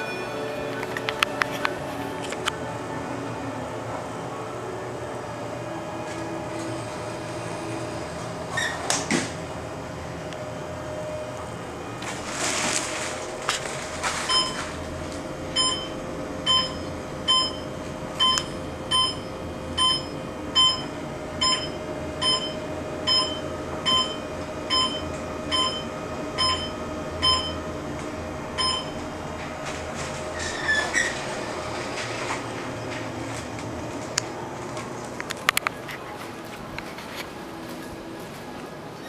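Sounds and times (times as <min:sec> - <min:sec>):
elevator brakes squealing: 0:00.0 - 0:02.2, 0:06.0 - 0:09.4, 0:29.9 - 0:33.0
elevator clicks: 0:00.0 - 0:02.6, 0:13.0 - 0:36.9
elevator doors opening: 0:00.0 - 0:39.0
elevator motor hum: 0:00.0 - 0:39.0.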